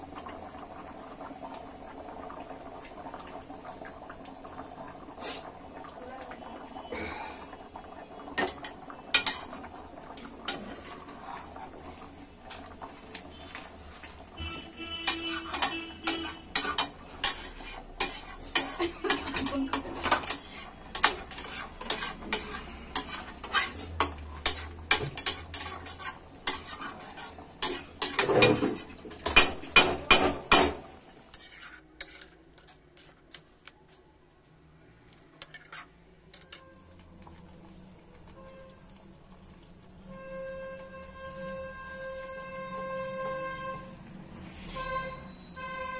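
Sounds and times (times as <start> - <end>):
spatula scraping metal pan: 8.4 - 9.6, 10.2 - 11.9, 12.5 - 30.7, 31.3 - 33.2, 35.4 - 36.6.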